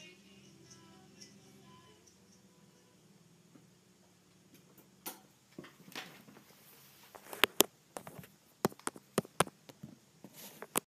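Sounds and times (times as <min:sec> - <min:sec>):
faint rustling: 0:05.6 - 0:10.8
sharp clicks and knocks: 0:07.4 - 0:10.0.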